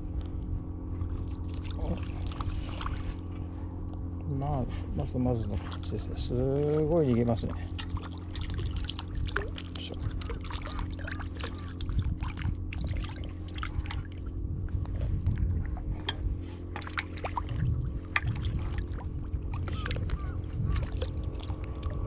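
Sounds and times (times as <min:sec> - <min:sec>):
water splashing and sloshing: 0:00.2 - 0:22.0
fish thrashing at water surface: 0:06.6 - 0:14.3, 0:15.3 - 0:22.0.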